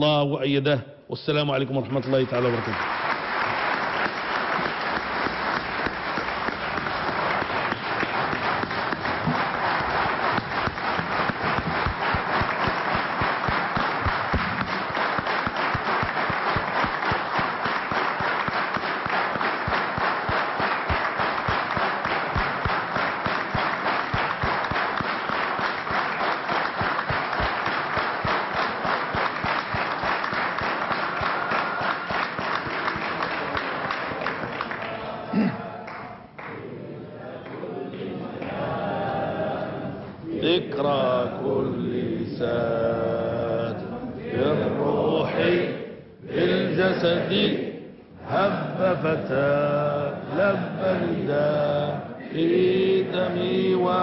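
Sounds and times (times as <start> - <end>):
large crowd applauding: 2.0 - 36.6.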